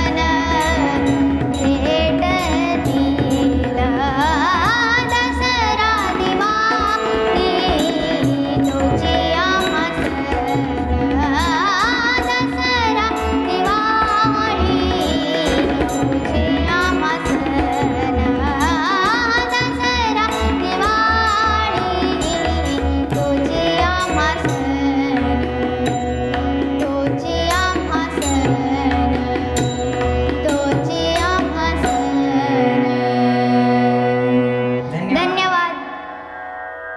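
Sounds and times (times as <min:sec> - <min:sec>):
girl singing: 0:00.0 - 0:36.1
tabla rhythm: 0:00.0 - 0:36.6
harmonium: 0:00.0 - 0:36.9.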